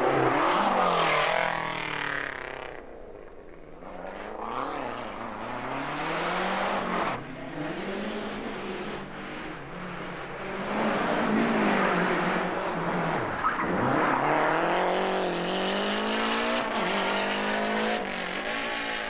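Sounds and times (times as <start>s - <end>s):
rally car engine accelerating hard: 0.0s - 3.0s, 3.7s - 19.0s.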